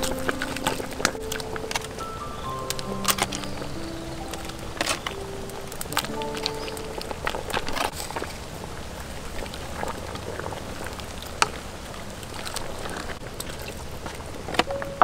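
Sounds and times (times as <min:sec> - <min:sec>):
wooden spoon stirring: 0:00.0 - 0:08.5
soup boiling in a metal pot: 0:00.0 - 0:14.8.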